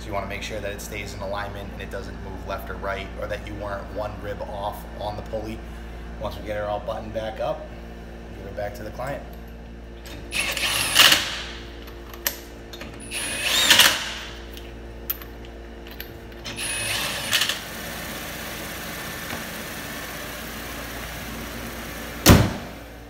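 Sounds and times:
impact wrench bursts: 10.3 - 11.6, 13.0 - 14.4, 16.4 - 18.7.

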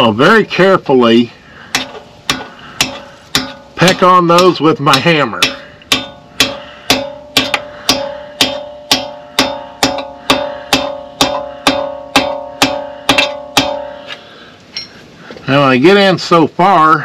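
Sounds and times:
hammer tapping metal: 1.7 - 14.2.

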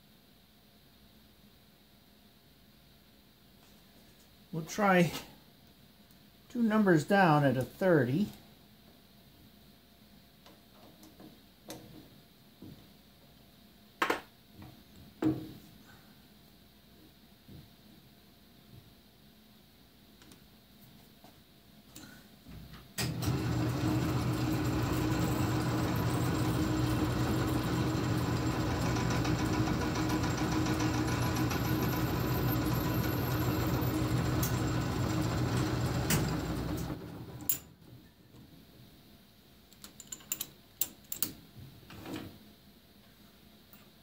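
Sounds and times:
metal lathe running: 23.1 - 37.5.

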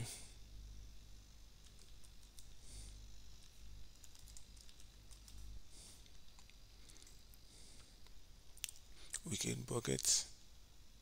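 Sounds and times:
low hum: 0.0 - 11.0
keyboard typing: 1.6 - 2.6, 3.4 - 5.5.

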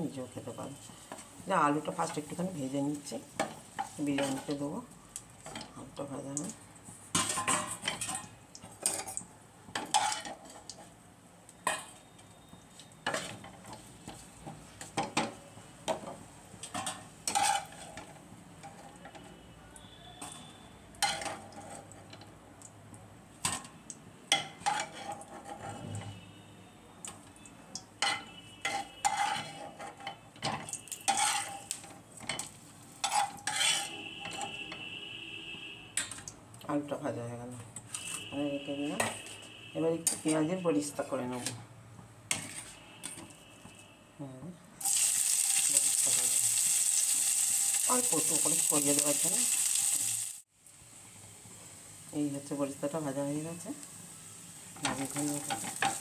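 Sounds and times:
oil sizzling: 44.8 - 56.0.

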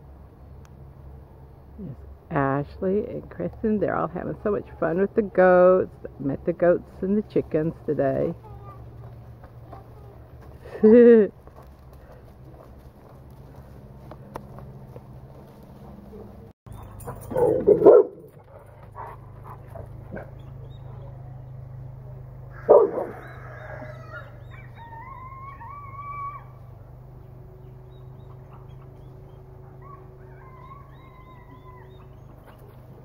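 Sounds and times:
animal calling: 22.5 - 26.7, 27.8 - 32.8.

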